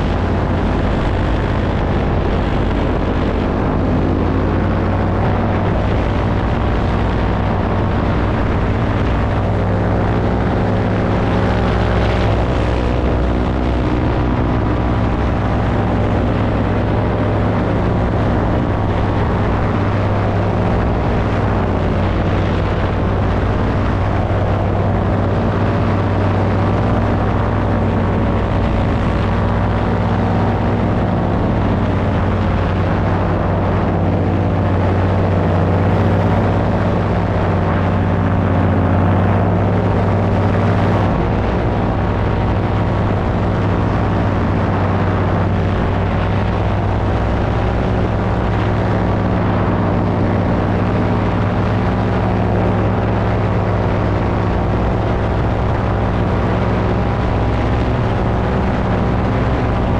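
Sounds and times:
paramotor engine droning: 0:00.0 - 0:59.9.

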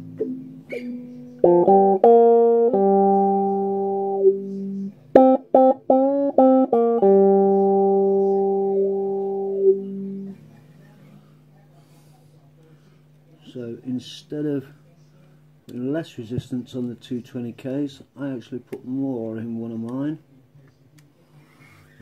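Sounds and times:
buzzy synthesizer notes: 0:01.4 - 0:10.4.

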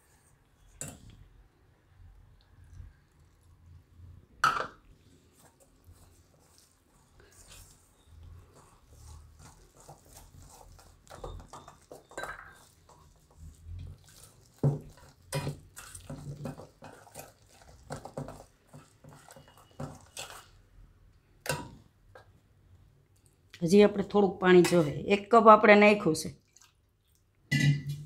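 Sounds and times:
whisk scraping metal bowl: 0:05.4 - 0:20.6.

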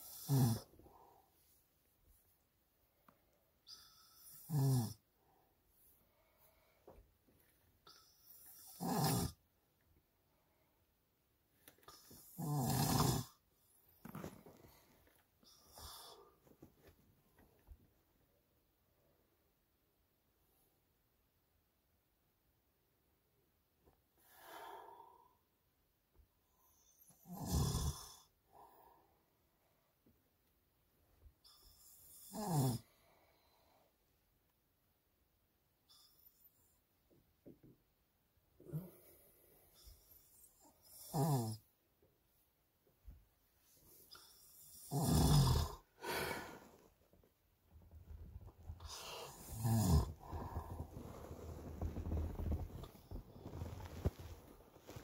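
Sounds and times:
man snoring: 0:00.0 - 0:01.0, 0:03.8 - 0:05.0, 0:08.4 - 0:09.4, 0:11.9 - 0:13.4, 0:27.1 - 0:28.3, 0:31.8 - 0:32.9, 0:40.3 - 0:41.6, 0:44.1 - 0:46.6, 0:48.8 - 0:54.1
breathy exhale: 0:46.0 - 0:46.8.

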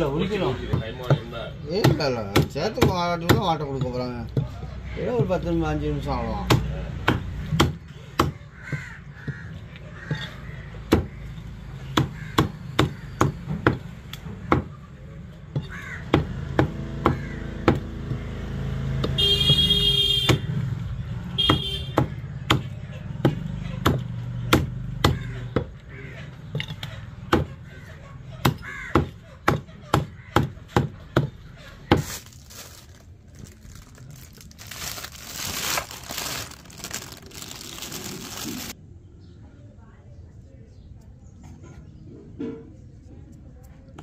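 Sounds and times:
crow cawing: 0:08.2 - 0:11.4, 0:12.0 - 0:13.4, 0:15.6 - 0:16.2, 0:17.0 - 0:17.8, 0:25.1 - 0:32.7.

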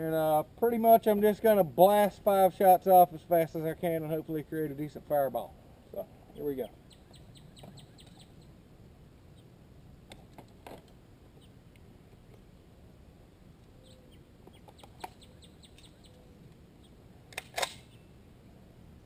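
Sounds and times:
birds chirping: 0:03.1 - 0:08.6, 0:11.3 - 0:11.7, 0:13.6 - 0:17.1
shotgun cracks: 0:17.3 - 0:18.0.

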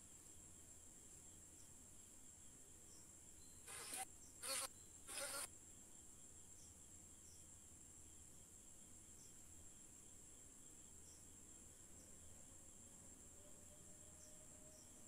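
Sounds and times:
faint high-pitched hiss: 0:00.0 - 0:15.0.

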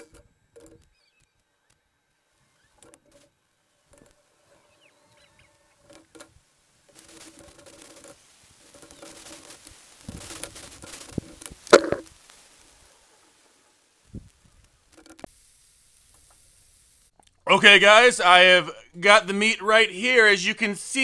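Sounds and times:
faint clicks: 0:00.0 - 0:15.4
steak sizzling in a pan: 0:08.2 - 0:17.2.

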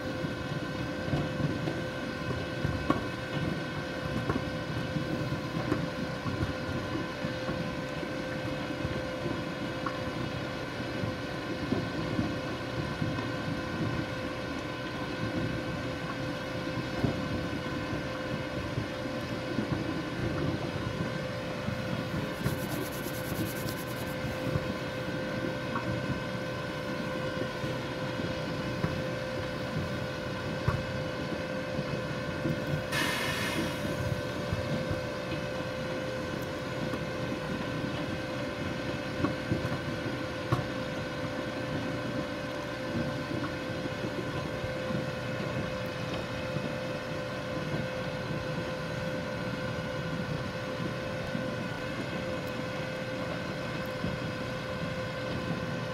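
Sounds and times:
machine engine and conveyors droning: 0:00.0 - 0:55.9
short hiss: 0:32.9 - 0:33.8.

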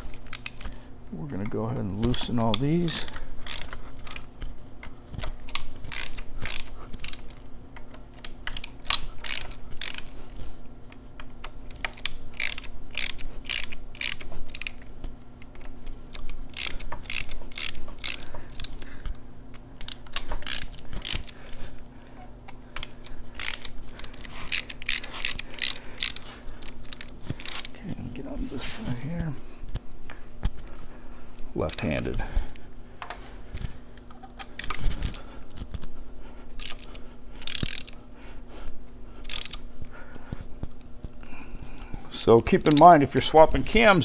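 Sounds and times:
socket ratchet clicking: 0:00.0 - 0:00.8, 0:01.4 - 0:10.2, 0:10.9 - 0:18.9, 0:19.5 - 0:21.6, 0:22.4 - 0:27.8, 0:36.6 - 0:38.0, 0:39.2 - 0:39.7, 0:42.6 - 0:43.0.

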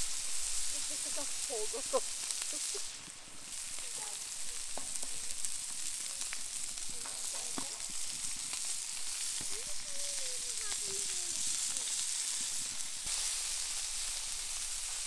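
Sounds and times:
steak sizzling on griddle: 0:00.0 - 0:15.0.

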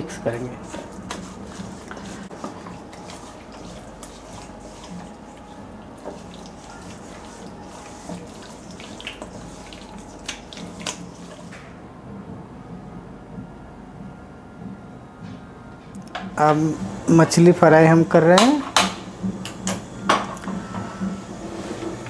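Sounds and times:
wet squelching of marinade: 0:00.3 - 0:11.5.

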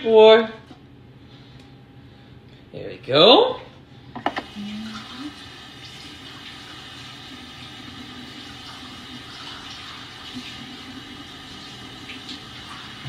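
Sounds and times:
water running from a tap: 0:04.4 - 0:13.0.

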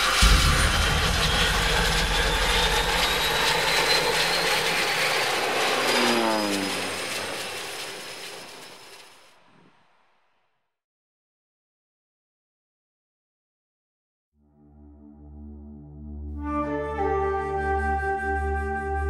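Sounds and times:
propeller aircraft passing low: 0:00.0 - 0:09.3.

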